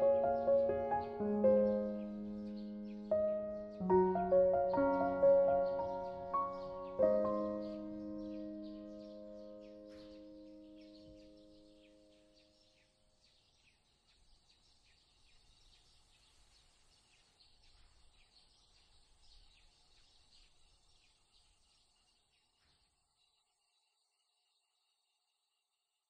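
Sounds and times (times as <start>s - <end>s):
bird chirps: 0.0s - 25.2s.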